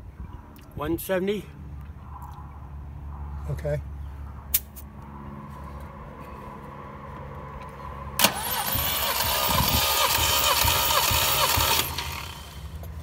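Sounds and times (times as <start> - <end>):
starter motor cranking engine: 8.2 - 13.0.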